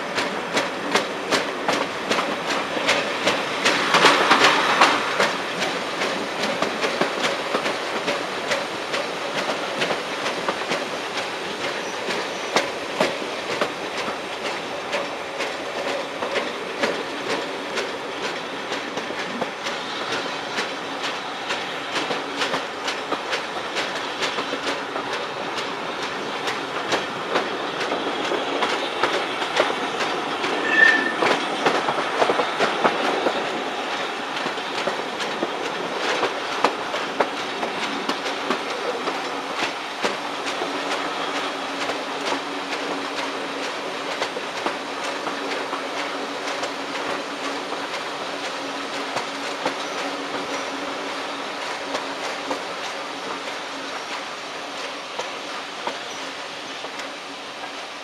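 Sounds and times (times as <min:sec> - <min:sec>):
train wheels clickety-clack: 0:00.0 - 0:58.0.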